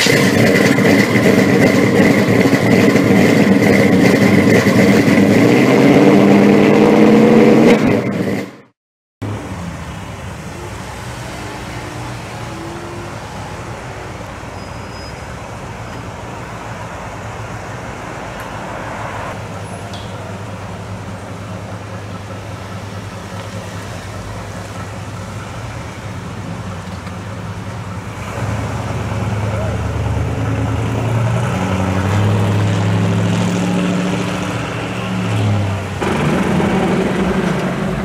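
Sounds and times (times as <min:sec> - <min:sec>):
street traffic: 0:00.0 - 0:38.0
car engine rolling past: 0:17.8 - 0:38.0.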